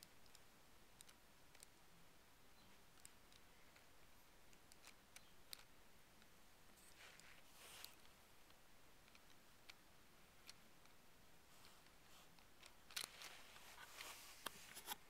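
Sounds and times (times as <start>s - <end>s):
plastic toy parts clicking: 4.5s - 9.8s, 11.6s - 13.4s.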